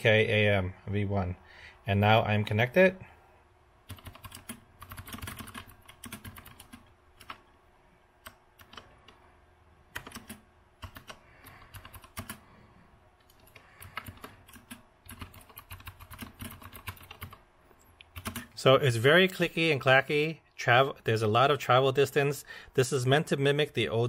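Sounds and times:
clicky mechanical keyboard typing: 0:03.9 - 0:07.4, 0:08.2 - 0:09.2, 0:09.9 - 0:12.4, 0:13.2 - 0:17.4, 0:18.1 - 0:18.5.

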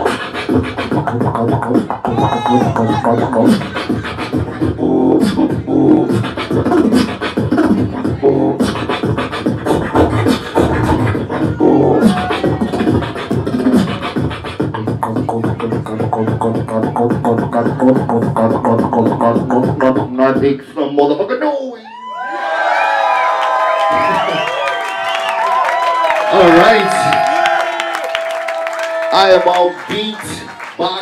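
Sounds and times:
beatboxing into a microphone: 0:00.0 - 0:21.6.

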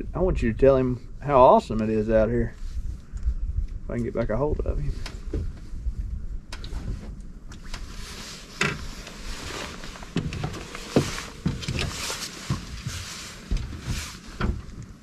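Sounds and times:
wind rumble on microphone: 0:00.0 - 0:15.0
footsteps on aluminum boat deck: 0:05.0 - 0:05.8, 0:06.5 - 0:15.0.

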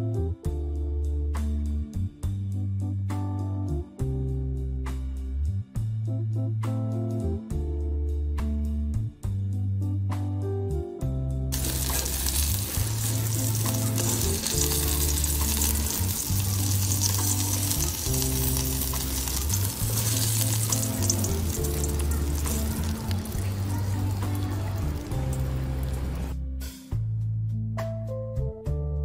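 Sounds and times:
background music with low notes: 0:00.0 - 0:29.0
hot oil sizzling: 0:11.6 - 0:26.4.

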